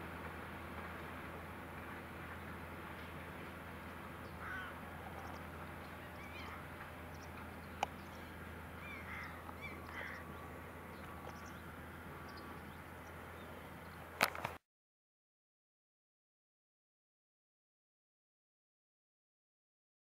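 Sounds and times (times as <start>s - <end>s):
tractor engine droning: 0.0s - 14.6s
gulls calling: 2.0s - 14.3s.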